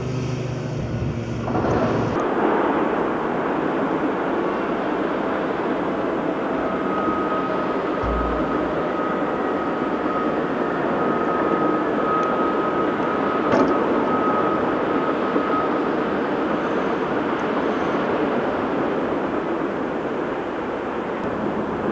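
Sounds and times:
thin steady whine: 5.4 - 17.0
single knock: 8.0 - 8.8
low thump: 8.0 - 9.0.

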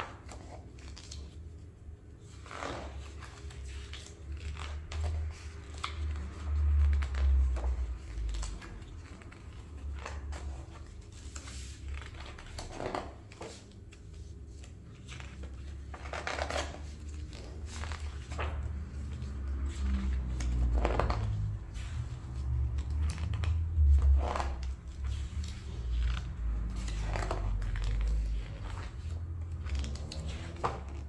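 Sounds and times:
book pages turning: 0.0 - 31.0.

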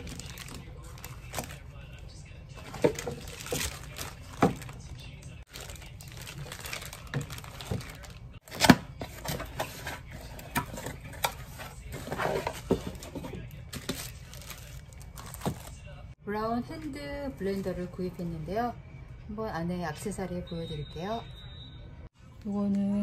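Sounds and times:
plastic bags crinkling: 0.0 - 2.0, 2.6 - 9.9, 10.7 - 15.9.

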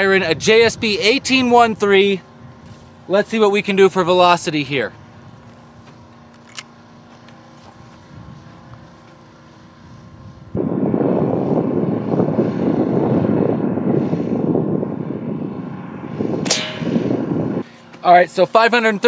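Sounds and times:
loud steady rushing noise: 7.7 - 19.0.

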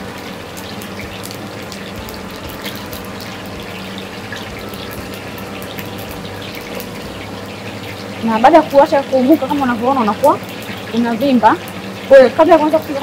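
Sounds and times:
low hum: 0.0 - 11.0
gas stove hissing: 0.0 - 13.0
oil crackling: 0.0 - 13.0.

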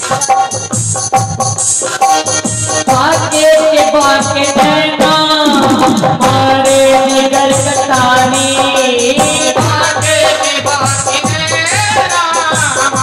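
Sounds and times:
devotional music over loudspeakers: 0.0 - 13.0.

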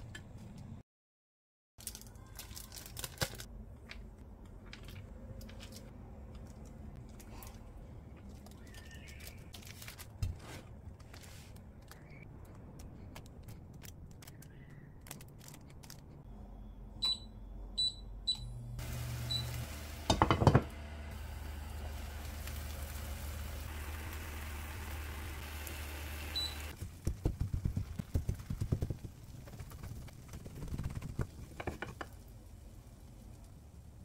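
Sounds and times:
hob touch controls beeping: 17.0 - 18.6
eggs sizzling in a pan: 18.8 - 26.8
wooden spatula knocking on pan: 20.1 - 20.7.

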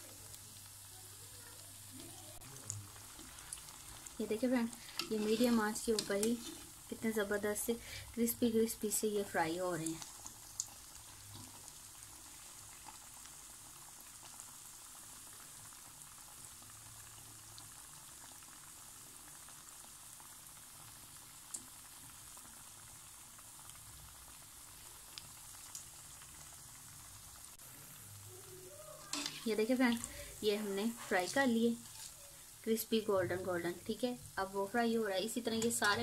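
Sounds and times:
fat sizzling: 0.0 - 36.0.

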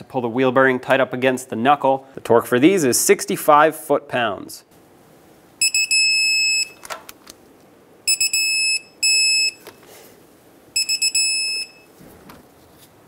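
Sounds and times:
torque wrench beeping: 5.6 - 6.8, 8.1 - 9.7, 10.8 - 11.9.

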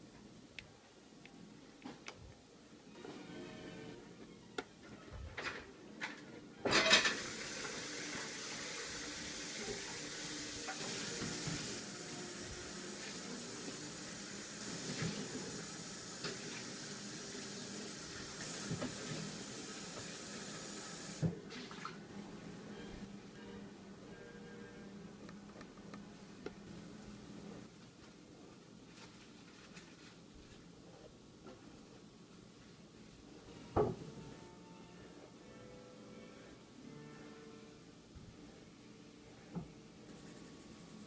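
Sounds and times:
water running: 7.0 - 22.0.

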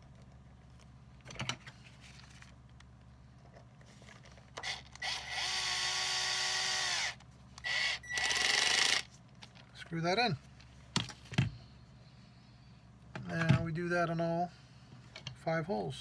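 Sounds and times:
power drill motor: 4.6 - 9.1.

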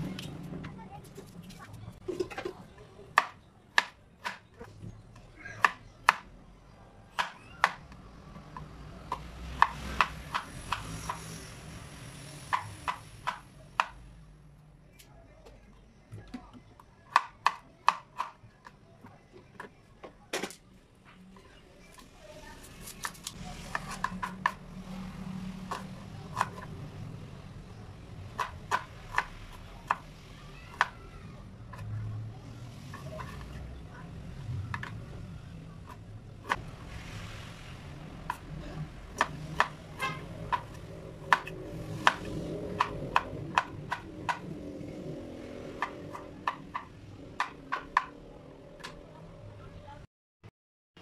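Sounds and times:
knife chopping on wooden board: 8.5 - 11.3, 12.5 - 14.0, 25.7 - 26.7, 39.1 - 44.6, 45.7 - 48.1.

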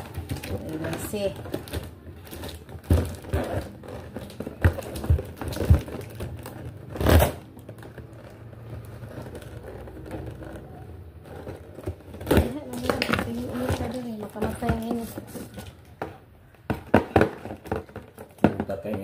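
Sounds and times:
cardboard ripping: 0.0 - 15.7
cardboard crinkling: 0.0 - 19.0
knocks on cardboard box: 16.7 - 19.0.

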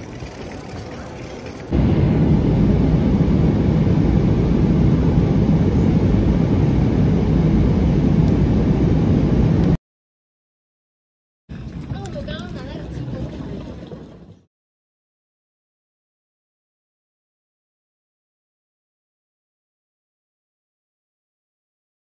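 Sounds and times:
airliner cabin jet rumble: 0.0 - 9.8.

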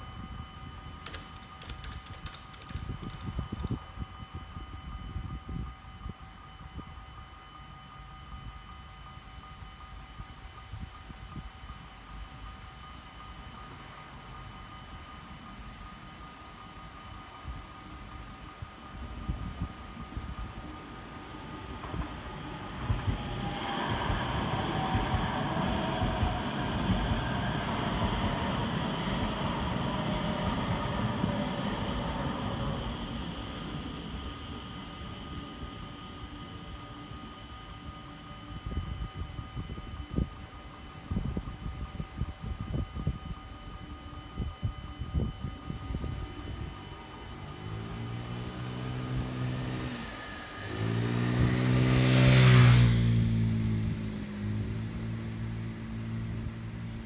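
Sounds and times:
metro train rumbling on rails: 0.0 - 57.0
motor scooter passing by: 47.8 - 56.3.

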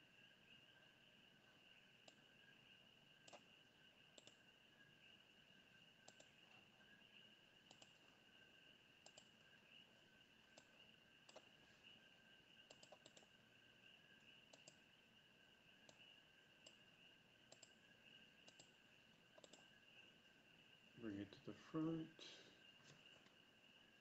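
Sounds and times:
faint computer mouse clicks: 2.0 - 2.3, 3.2 - 3.5, 4.1 - 4.4, 6.0 - 6.5, 7.6 - 8.0, 9.0 - 9.5, 10.5 - 11.5, 12.6 - 13.4, 14.5 - 14.8, 15.8 - 16.8, 17.5 - 17.8, 18.4 - 18.8, 19.4 - 19.8.

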